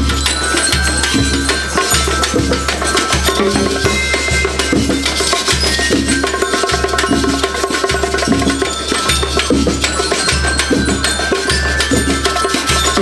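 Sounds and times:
congas: 0.0 - 13.0
higher ringing notes: 0.0 - 13.0
snare drums: 0.0 - 13.0.

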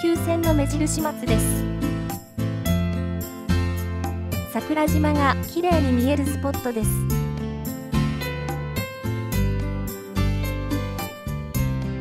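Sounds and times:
soothing instrumental music: 0.0 - 12.0.

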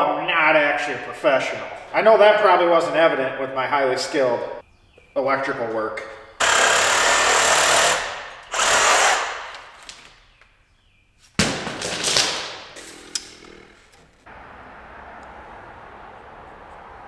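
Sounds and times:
reciprocating saw cutting cable: 6.4 - 9.8.

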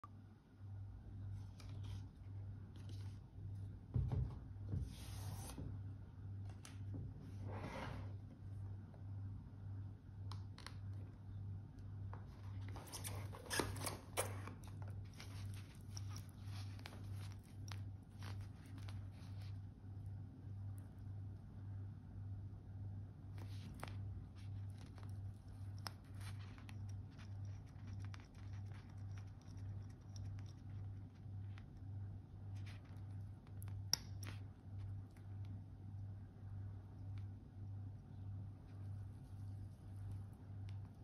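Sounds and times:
rustling handling noise: 12.0 - 20.2.

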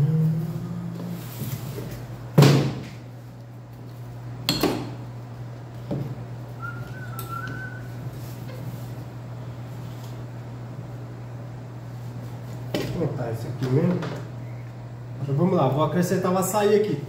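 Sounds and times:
steady low hum: 0.0 - 17.0
faint wavering whistle: 6.6 - 8.0.

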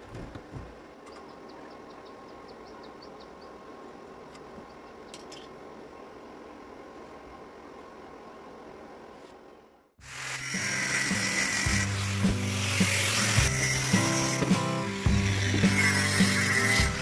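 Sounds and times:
faint background hum and hiss: 0.0 - 10.2.

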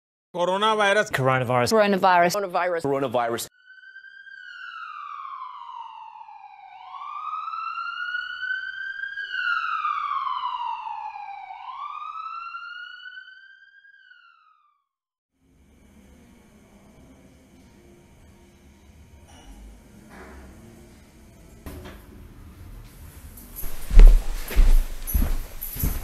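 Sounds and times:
emergency siren wailing: 3.5 - 14.9.

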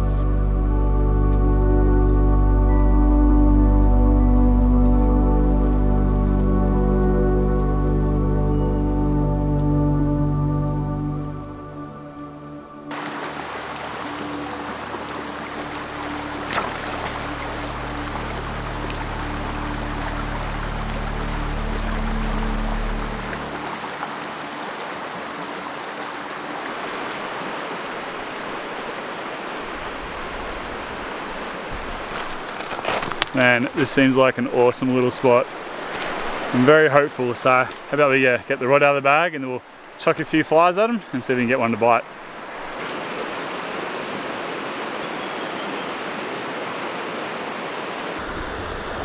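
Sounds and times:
river rippling over rocks: 11.7 - 49.0
low rumble: 14.1 - 23.8.

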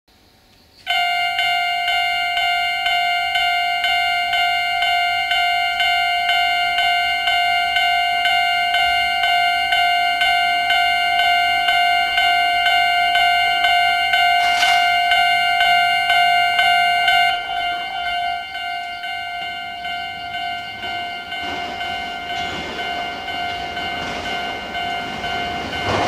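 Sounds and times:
level crossing warning bell ringing: 0.9 - 26.0.

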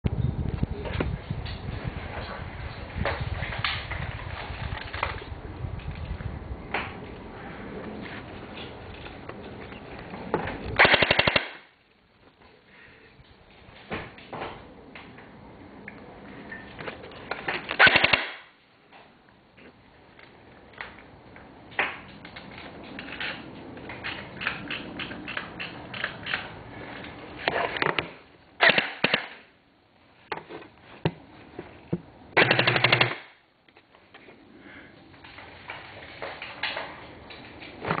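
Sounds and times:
airsoft gun firing bursts: 10.8 - 11.7, 17.8 - 18.5, 32.4 - 33.4
airsoft gun single shots: 10.8 - 11.7, 17.8 - 18.5, 28.6 - 29.4.

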